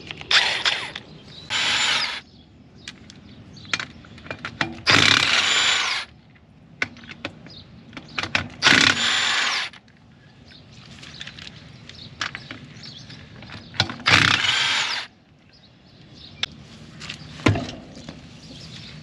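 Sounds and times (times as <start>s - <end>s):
impact wrench bursts: 0.3s - 2.2s, 4.9s - 6.1s, 8.6s - 9.8s, 14.0s - 15.1s.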